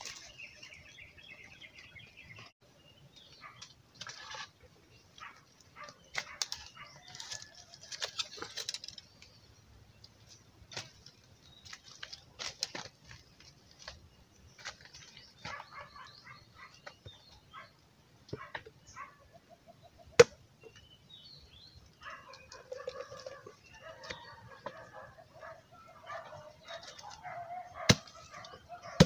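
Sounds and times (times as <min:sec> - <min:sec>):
birds chirping: 0:00.0 - 0:29.0
bamboo tubes knocking and clicking: 0:10.0 - 0:14.0.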